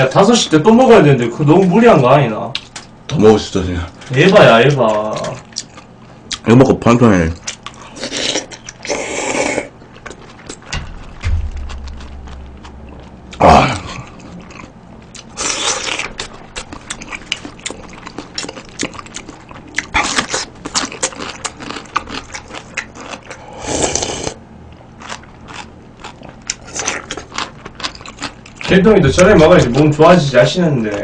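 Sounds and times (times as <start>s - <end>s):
crunchy chewing: 3.9s - 6.5s, 7.3s - 28.8s
slurping soup and noodles: 23.4s - 24.4s.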